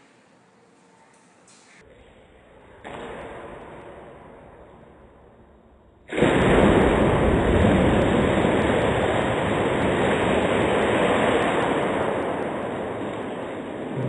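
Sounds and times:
slow-motion water splash: 2.8s - 14.0s.

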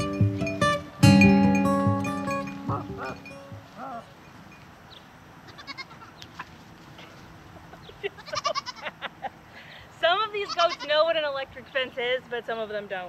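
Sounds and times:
goats bleating: 5.5s - 6.5s, 8.2s - 9.0s.

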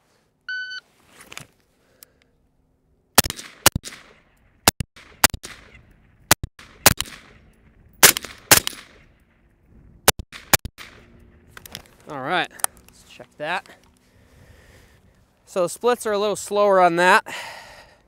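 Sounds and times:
shot timer beep: 0.5s - 0.8s
rifle shots with echo: 3.2s - 5.8s, 6.4s - 9.2s, 10.3s - 11.1s.

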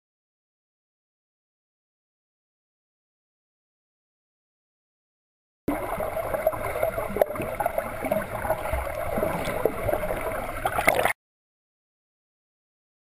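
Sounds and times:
underwater bubbling and splashing: 5.7s - 11.2s.

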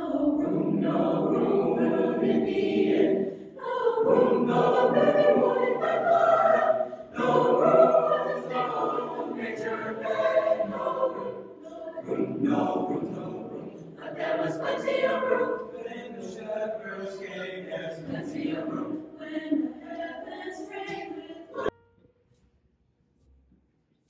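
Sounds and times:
choir singing: 0.0s - 21.7s
singers breathing: 3.2s - 3.6s, 6.8s - 7.2s.

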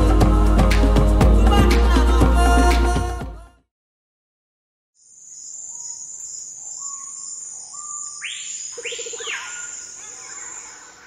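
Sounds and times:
loud arching bird calls: 6.5s - 11.0s
fast bird trill: 6.9s - 11.0s.

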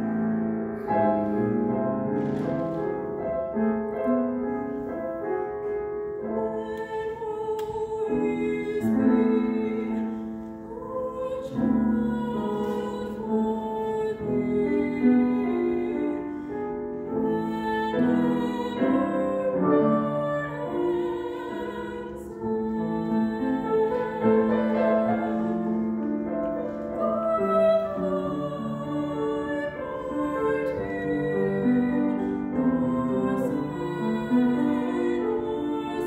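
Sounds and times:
grand piano: 0.0s - 36.0s
woman singing with vibrato: 6.3s - 16.3s, 17.0s - 25.9s, 26.5s - 36.0s.

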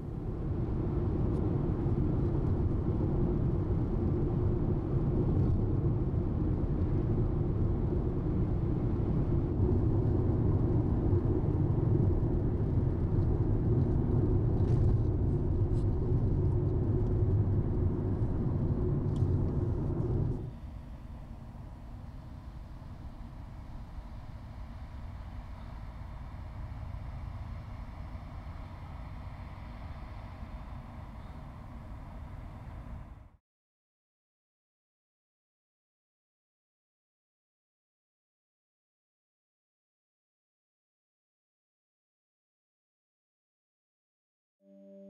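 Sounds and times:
road and engine noise in car: 0.0s - 33.4s.

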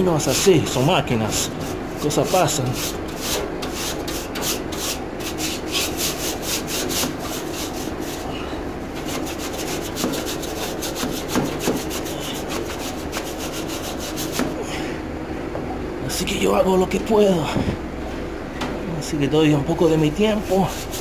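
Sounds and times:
broom bristles scrubbing metal coil: 0.2s - 14.5s, 19.7s - 21.0s.

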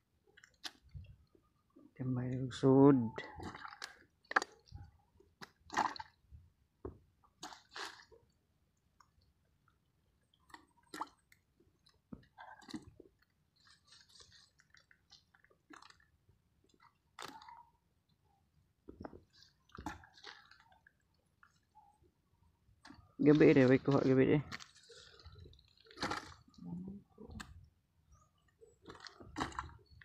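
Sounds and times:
squishy fish handling: 3.2s - 6.2s, 10.3s - 21.9s, 22.6s - 30.0s.

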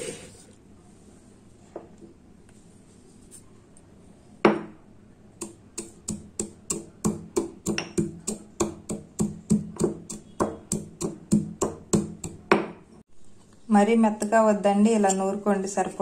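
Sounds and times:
pestle pounding in stone mortar: 5.4s - 12.8s.

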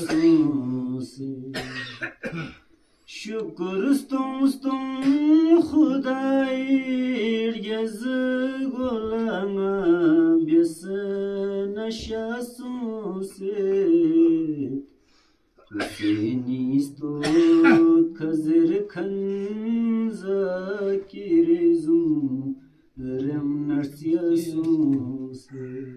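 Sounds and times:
unaccompanied person chanting: 0.0s - 1.6s, 3.1s - 14.9s, 15.7s - 25.9s
short breaths: 14.9s - 15.6s.

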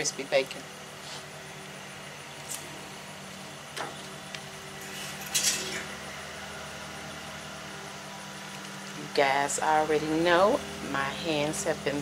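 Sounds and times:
steady low hum: 0.0s - 12.0s
metal utensil clinking on griddle: 4.8s - 5.9s.

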